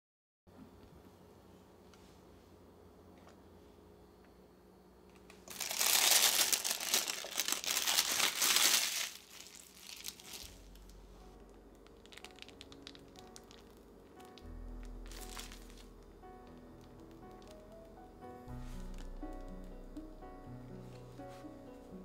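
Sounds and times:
plastic bag crinkling: 0:05.3 - 0:17.8.

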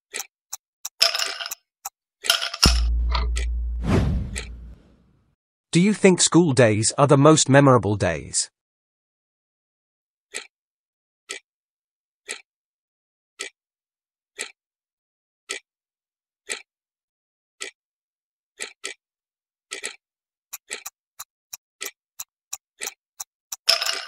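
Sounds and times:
clock ticking: 0:02.6 - 0:04.8, 0:20.6 - 0:24.0.

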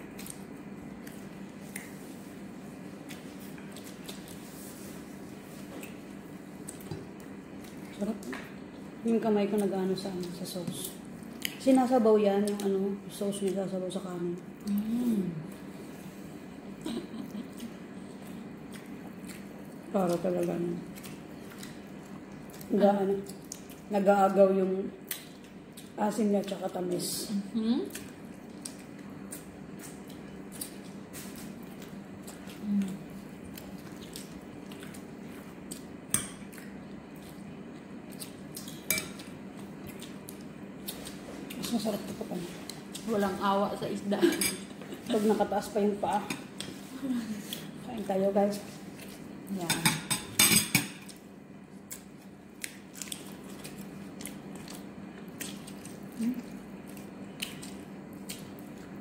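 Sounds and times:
chewing and wet mouth sounds: 0:00.0 - 0:16.0, 0:16.8 - 0:26.8, 0:27.8 - 0:43.6, 0:51.0 - 0:59.0
faint steady hum: 0:00.0 - 0:59.0
fingers clicking and squishing food: 0:09.4 - 0:13.7, 0:25.0 - 0:26.6, 0:27.9 - 0:37.4, 0:51.8 - 0:59.0.

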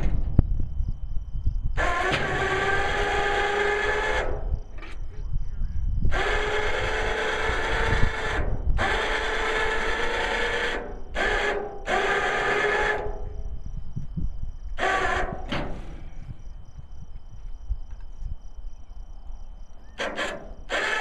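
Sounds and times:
small power tool running in bursts: 0:06.1 - 0:13.3, 0:20.7 - 0:21.0.

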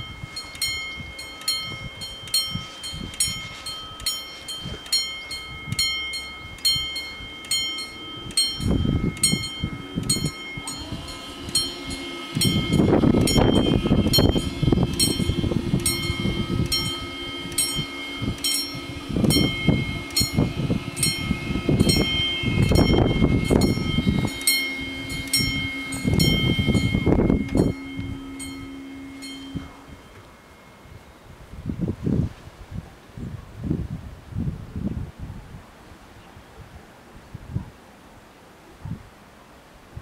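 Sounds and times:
level crossing warning bells: 0:00.0 - 0:31.8
steady ringing tone: 0:00.0 - 0:32.0
low rumbling: 0:00.0 - 0:35.6.

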